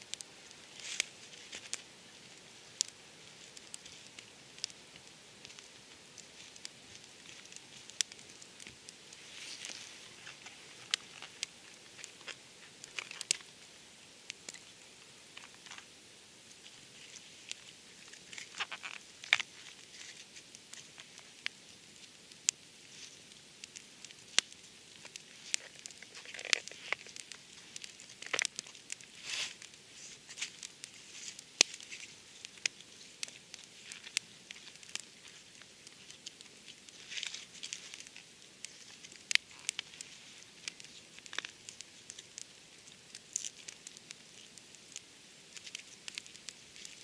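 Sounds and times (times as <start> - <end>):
campfire crackling and popping: 0.0 - 47.0
dry leaves rustling and crunching: 25.3 - 38.2.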